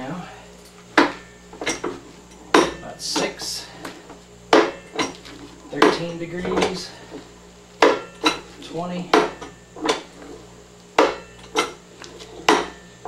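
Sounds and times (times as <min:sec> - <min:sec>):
tube bender metal clanks: 0:00.9 - 0:03.6, 0:04.5 - 0:06.9, 0:07.8 - 0:10.2, 0:11.0 - 0:12.9.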